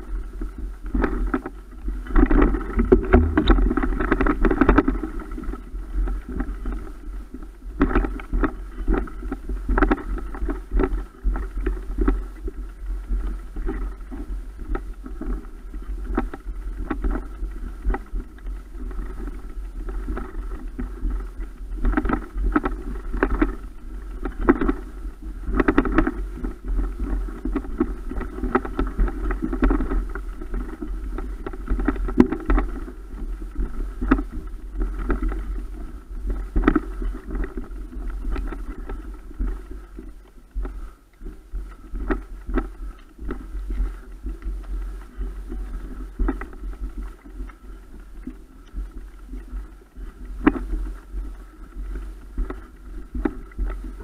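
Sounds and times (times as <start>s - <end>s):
camera handling rumble: 2.1s - 5.5s
bike knocks and rattles: 2.3s - 4.9s.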